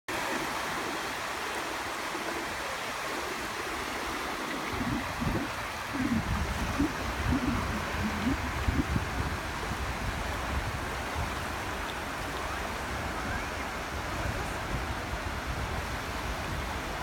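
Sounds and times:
small waves washing on shore: 0.1 - 17.0
wind buffeting microphone: 4.2 - 17.0.

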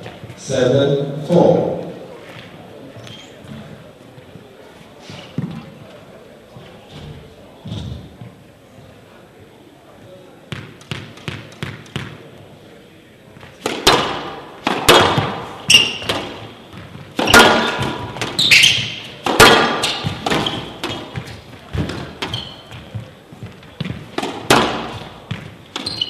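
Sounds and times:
shoes squeaking on court floor: 0.0 - 0.4, 1.5 - 8.9, 13.4 - 26.0
squash ball hitting rackets and walls: 10.5 - 12.5, 13.4 - 26.0.

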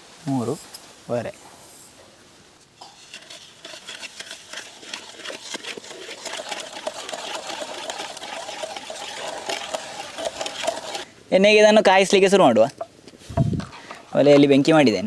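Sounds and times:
wooden spatula scraping metal pan: 2.8 - 11.1.

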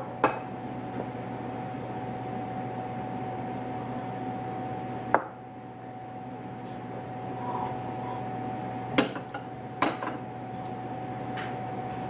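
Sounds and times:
high electrical hum: 0.0 - 12.0.

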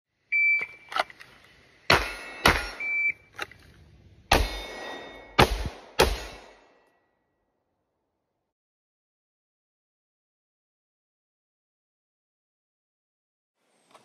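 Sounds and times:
pistol shots: 1.9 - 2.9, 4.3 - 6.7
brief high beep: 2.7 - 3.2.

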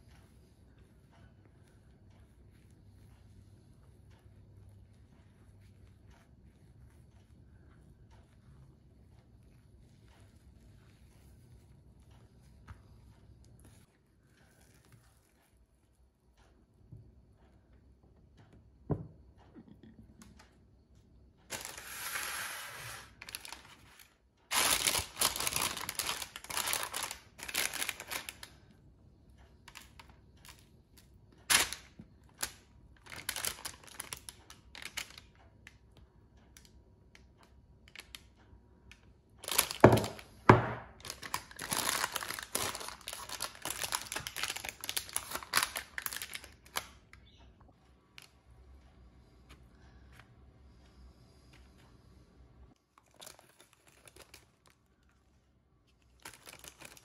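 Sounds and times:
baking paper crinkling: 21.5 - 28.6, 29.7 - 35.3, 39.4 - 47.2, 52.9 - 57.0.

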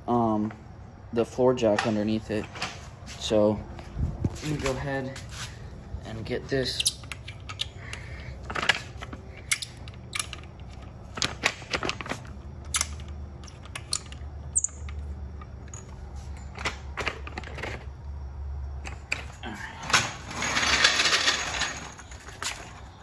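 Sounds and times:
jack rolling on concrete: 18.9 - 23.0
floor jack metal clicks and clanks: 19.9 - 22.9.

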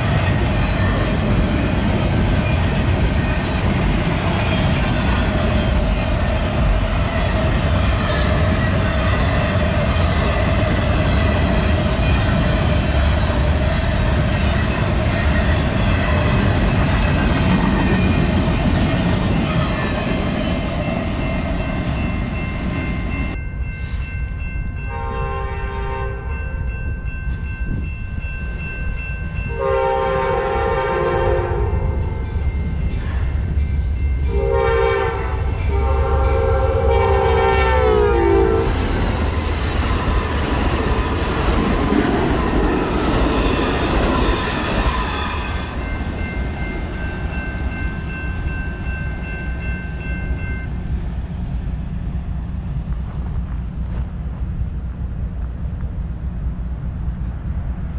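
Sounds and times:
passing train rumbling and clattering: 0.0 - 57.9
crossing bell ringing: 14.2 - 50.9
train horn blasts: 24.9 - 26.5, 29.5 - 32.1, 34.3 - 38.9.

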